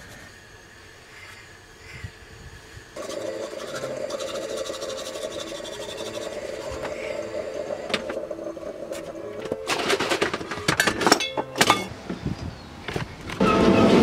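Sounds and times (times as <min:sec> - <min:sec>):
moka pot gurgling and sputtering: 0:03.0 - 0:10.3
kitchenware clacking: 0:08.8 - 0:11.9.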